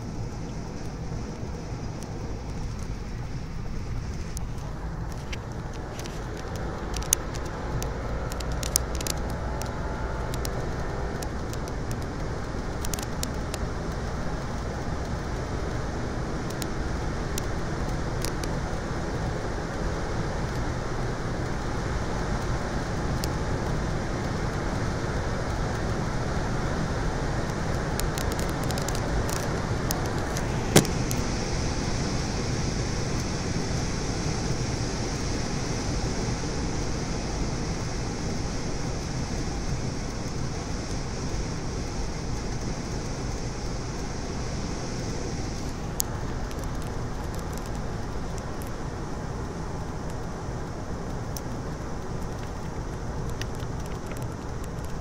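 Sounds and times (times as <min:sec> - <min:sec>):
car engine: 0:00.0 - 0:55.0
wind noise: 0:00.0 - 0:55.0.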